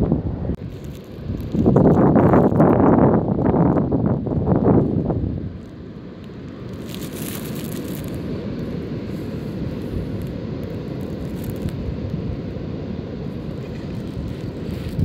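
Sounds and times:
wind rumbling on microphone: 0.0s - 15.0s
distant surf breaking: 5.2s - 15.0s.

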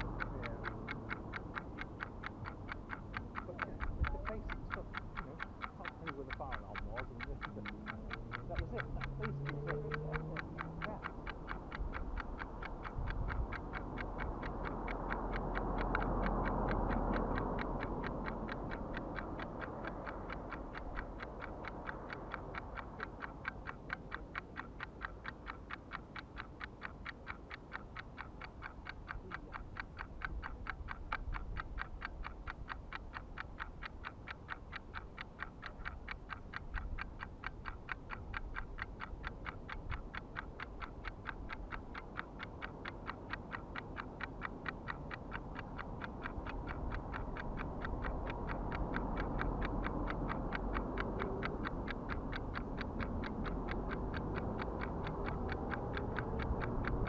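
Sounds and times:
low background rumble: 0.0s - 57.0s
rapid even ticking: 0.0s - 57.0s.

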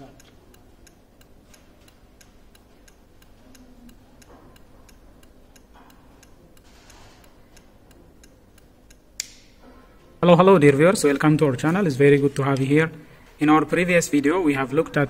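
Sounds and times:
loud switch click: 8.9s - 9.6s.

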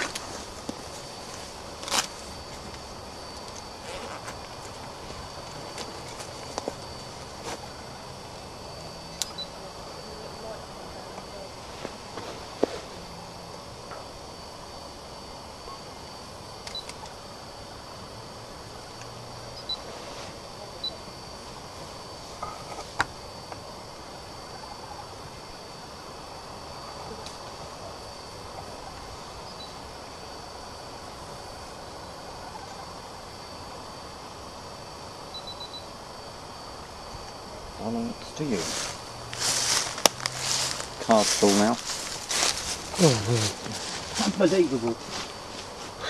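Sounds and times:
camcorder hiss and handling noise: 0.0s - 7.7s, 16.6s - 17.2s, 38.7s - 43.0s
faint high whine: 0.0s - 46.0s.

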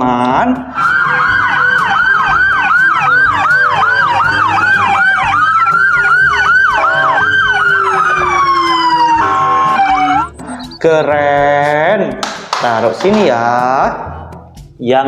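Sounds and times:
electronic siren yelping and wailing: 0.7s - 11.0s.

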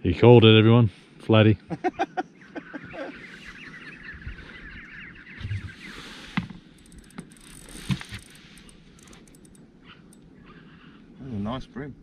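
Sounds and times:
fishing reel ratchety clicking: 6.7s - 10.2s.

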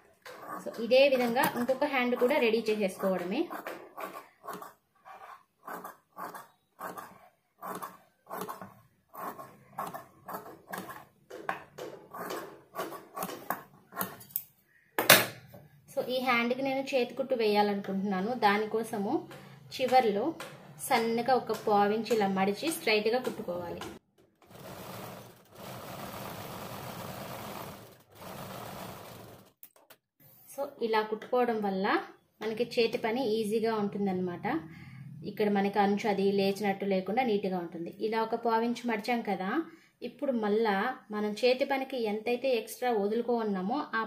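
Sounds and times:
sewing machine stitching: 0.0s - 11.2s, 24.3s - 29.6s.

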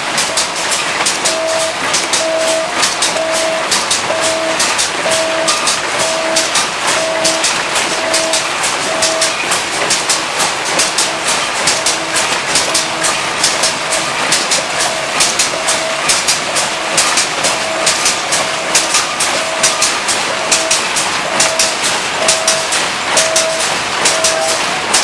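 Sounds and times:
packing machines clattering: 0.0s - 25.0s
steady mechanical noise: 0.0s - 25.0s
short repeating tone: 1.2s - 9.4s, 17.6s - 24.6s.

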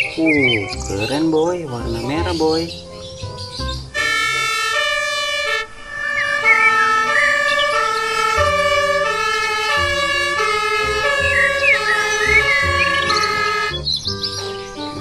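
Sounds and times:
two-tone fire engine siren: 3.9s - 13.9s.

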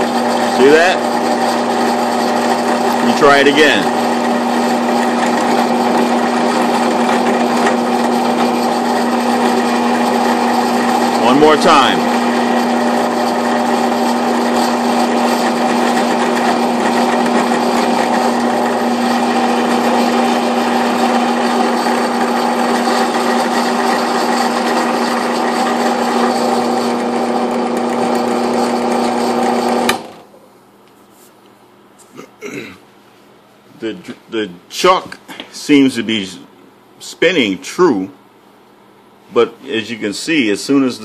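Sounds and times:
drill press motor hum: 0.0s - 30.2s.

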